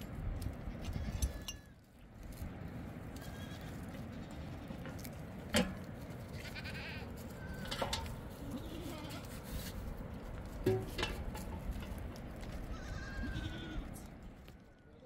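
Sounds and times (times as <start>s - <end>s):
livestock bleating: 3.2s - 5.0s, 6.4s - 7.8s, 8.4s - 9.3s, 12.7s - 14.1s.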